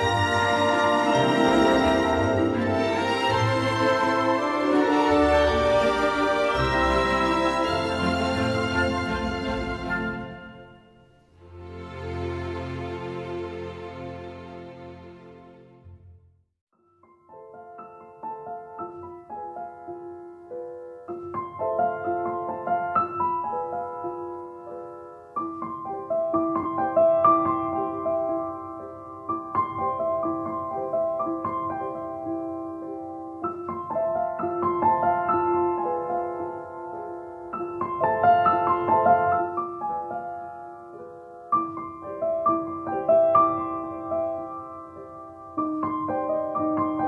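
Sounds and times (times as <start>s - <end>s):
gentle solo piano: 17.0s - 47.0s.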